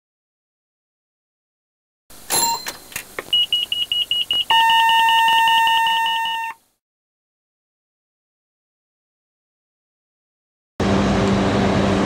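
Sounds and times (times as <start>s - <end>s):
rapid high-pitched pulsing beep: 3.4s - 6.6s.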